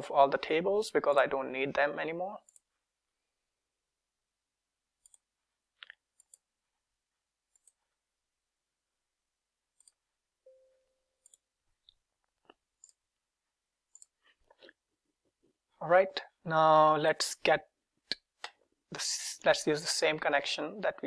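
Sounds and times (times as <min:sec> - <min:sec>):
faint computer mouse clicks: 0:05.0 - 0:05.2, 0:13.9 - 0:14.2.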